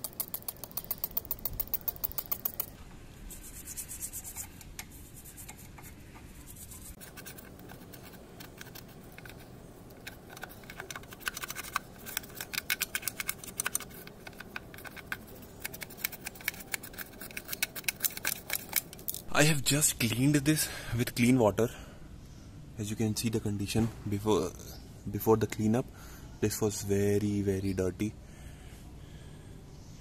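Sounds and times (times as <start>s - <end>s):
scrubbing brush strokes: 2.1s - 18.5s.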